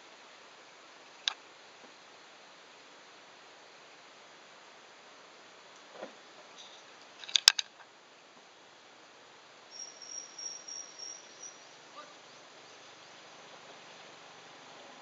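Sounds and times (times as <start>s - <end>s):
faint hiss: 0.0s - 15.0s
high insect trill: 9.6s - 14.7s.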